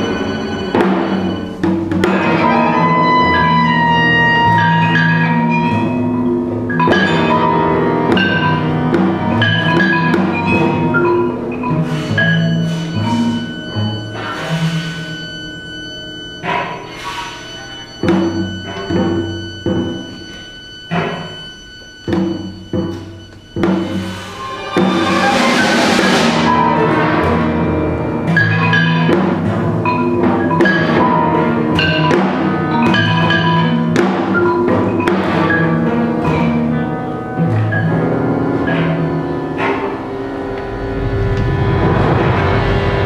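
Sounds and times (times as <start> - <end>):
chamber orchestra strings and winds: 23.6 - 27.6.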